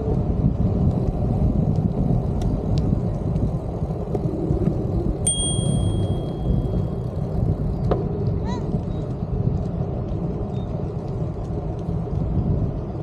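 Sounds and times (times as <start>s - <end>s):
wind and road rumble: 0.0s - 13.0s
bicycle bell ringing: 5.3s - 7.0s.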